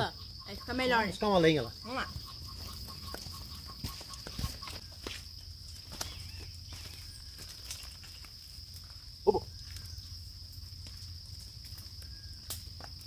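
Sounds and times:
farm animal call: 0.0 - 5.0.

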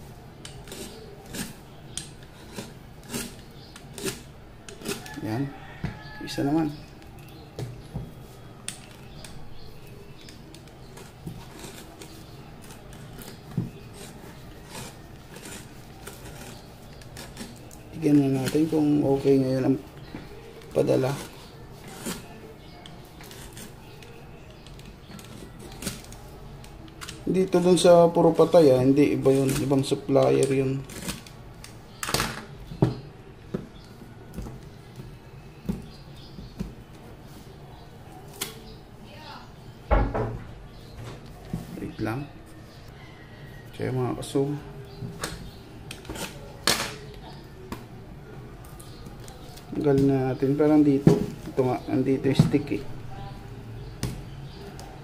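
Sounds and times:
faint scratching: 0.0 - 7.4, 8.2 - 28.6.

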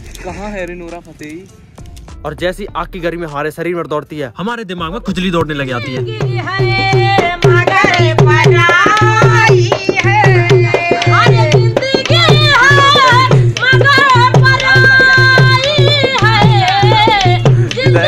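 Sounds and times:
music with drum beat: 4.8 - 18.0.

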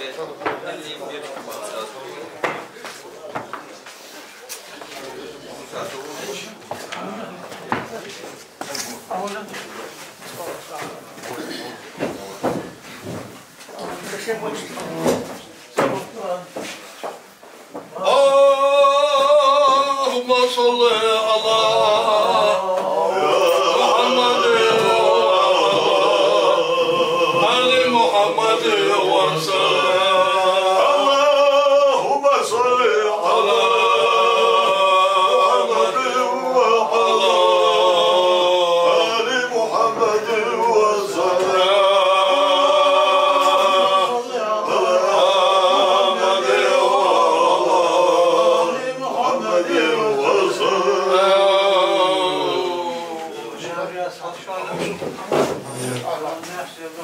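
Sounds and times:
man singing unaccompanied: 17.9 - 53.8.

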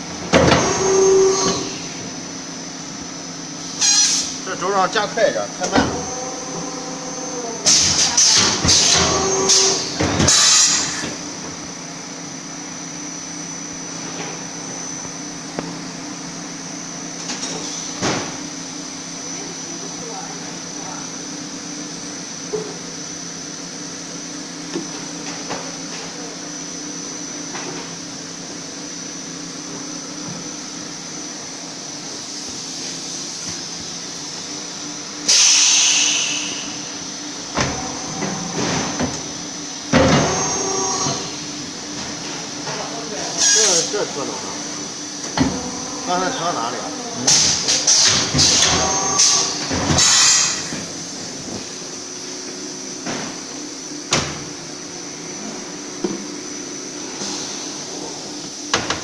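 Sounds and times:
machine hum and whine: 0.0 - 59.0
machine hissing: 35.2 - 36.9.

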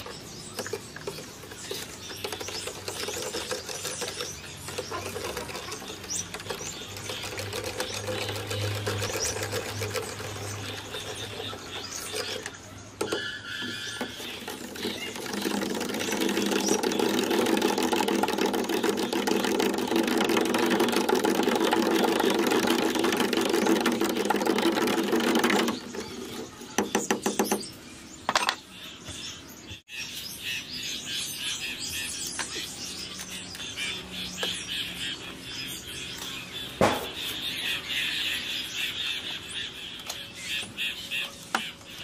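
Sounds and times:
rod stirring in plastic jar: 0.1 - 26.6.

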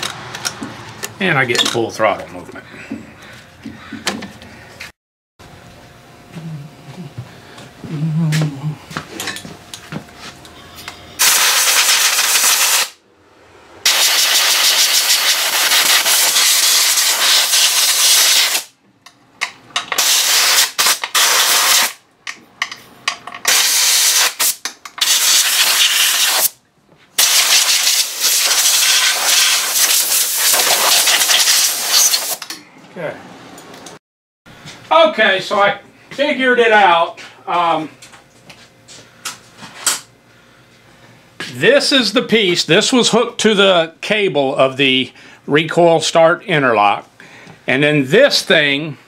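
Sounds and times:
compressed air blow gun hissing: 11.2 - 13.0, 13.9 - 18.7, 23.5 - 26.5, 27.2 - 32.4.

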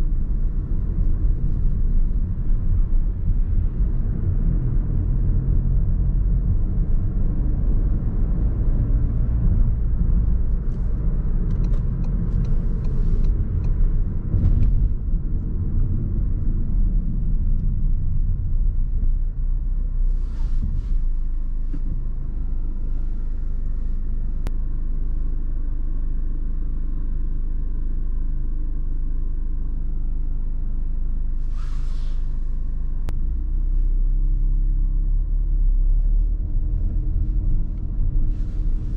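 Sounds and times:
car engine and road rumble: 0.0 - 38.9
short hisses: 31.4 - 32.5.

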